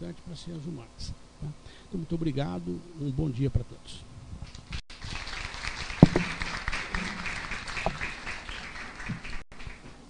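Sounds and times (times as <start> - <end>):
audience applauding: 4.9 - 9.9.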